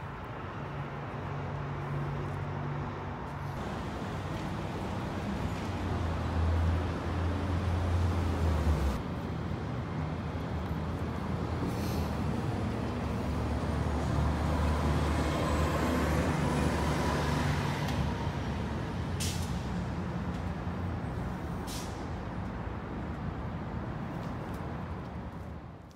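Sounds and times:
air brake hisses: 0:11.7 - 0:12.2, 0:21.6 - 0:22.1.

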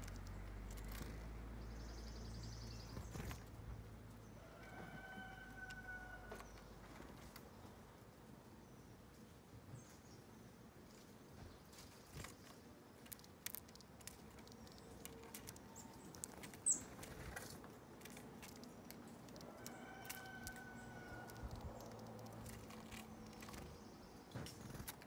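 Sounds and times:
bird pecking seed taps and clicks: 0:00.0 - 0:01.2, 0:12.1 - 0:25.0.

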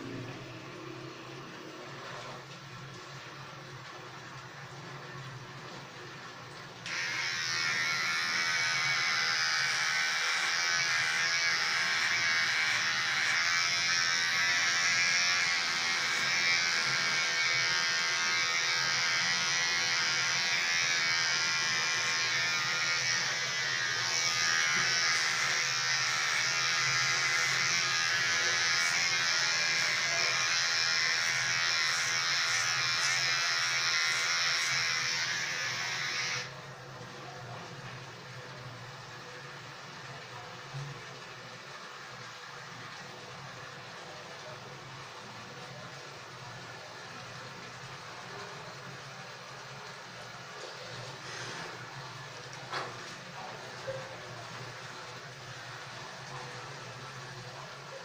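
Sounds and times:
electric hair trimmer running: 0:06.8 - 0:36.5.

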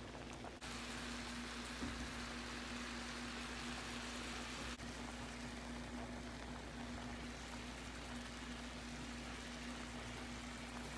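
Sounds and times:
low steady hum: 0:00.0 - 0:10.9
food hissing on stovetop: 0:00.6 - 0:04.8.

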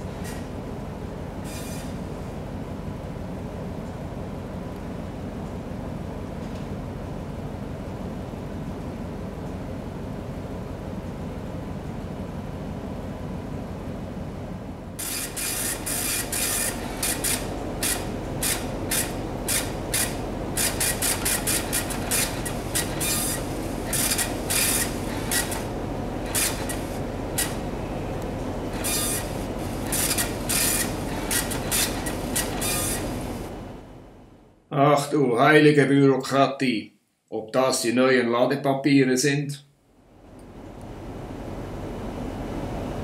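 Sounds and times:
printer printing: 0:01.4 - 0:02.1, 0:15.0 - 0:33.9
low engine hum: 0:02.0 - 0:34.5.

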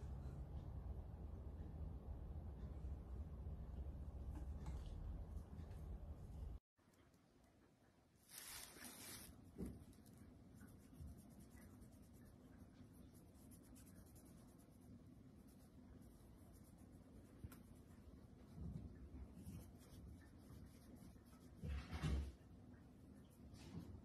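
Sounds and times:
fabric rustling: 0:08.2 - 0:09.4.

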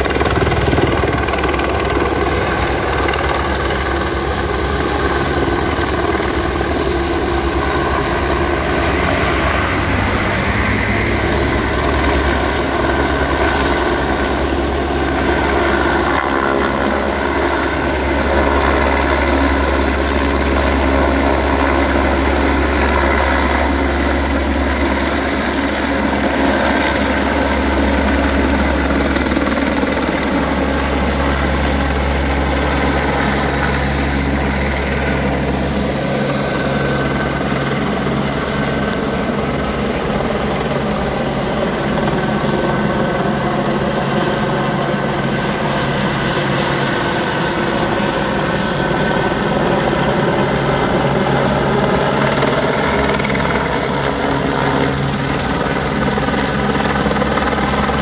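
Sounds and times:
turbine whining: 0:00.0 - 0:49.8
helicopter rotor beating: 0:00.0 - 0:58.0.

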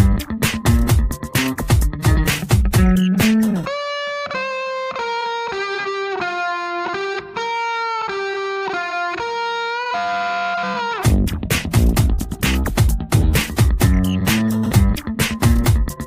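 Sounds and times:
drums: 0:00.0 - 0:03.7, 0:11.0 - 0:16.0
sliding lead melody: 0:00.0 - 0:16.0.

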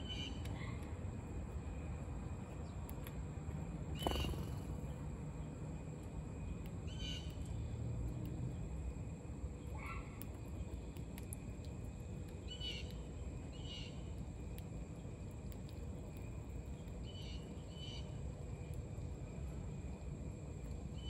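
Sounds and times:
low background rumble: 0:00.0 - 0:21.0
short bird chirps: 0:04.0 - 0:04.8.

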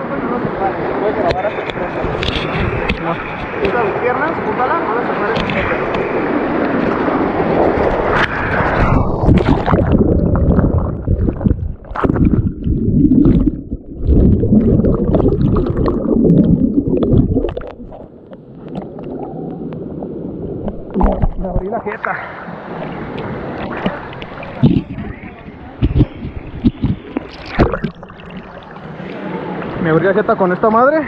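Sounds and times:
underwater gurgling and churning: 0:01.4 - 0:29.8.

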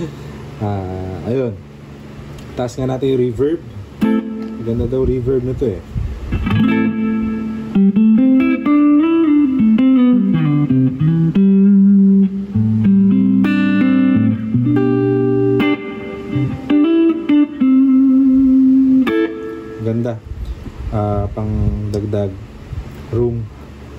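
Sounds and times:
clean electric guitar with reverb: 0:03.8 - 0:05.6, 0:06.3 - 0:21.7.

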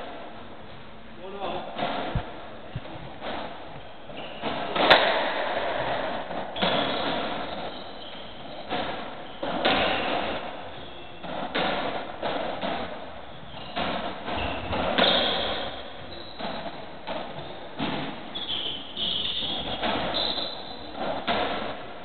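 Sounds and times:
ball smacking off court walls: 0:01.7 - 0:21.8
ball struck by rackets: 0:01.7 - 0:21.9.

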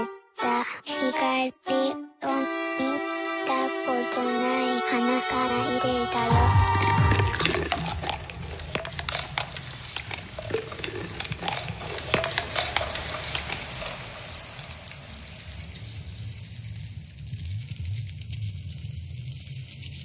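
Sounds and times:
irregular crackling and clicking: 0:06.1 - 0:20.0.

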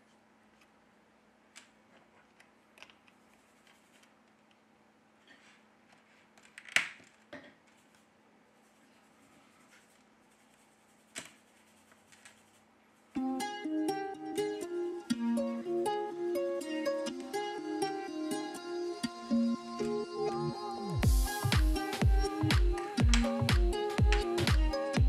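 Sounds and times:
plucked-string background music: 0:13.2 - 0:25.0.

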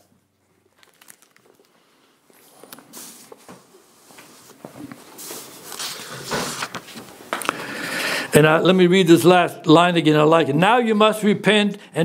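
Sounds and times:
soft rustling and handling: 0:00.5 - 0:07.5.

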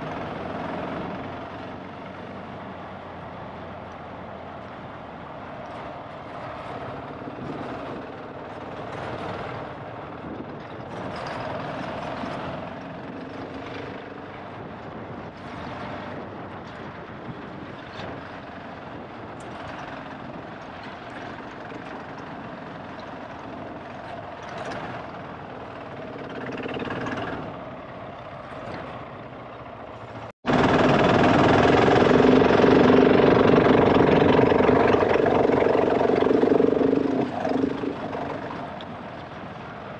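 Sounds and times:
motorcycle engine revving: 0:30.5 - 0:38.8.

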